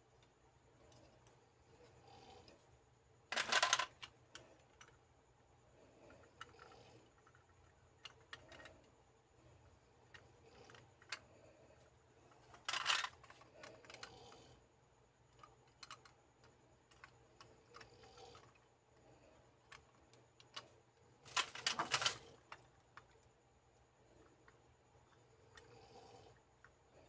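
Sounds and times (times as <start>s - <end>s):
plastic capsule toys clicking: 3.3s - 5.0s, 6.1s - 8.9s, 10.1s - 11.3s, 12.3s - 14.5s, 15.3s - 18.7s, 21.3s - 23.3s
rapid plastic clicking: 12.3s - 14.5s, 15.3s - 18.7s, 19.6s - 23.3s.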